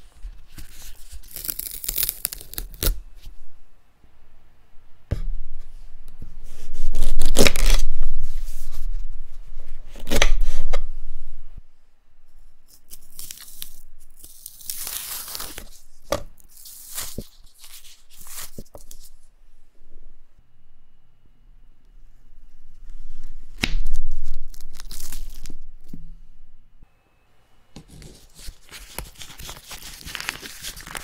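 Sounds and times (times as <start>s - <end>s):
banana peel tearing: 0.9s - 3.0s, 7.0s - 7.8s, 12.7s - 15.8s, 23.5s - 25.6s.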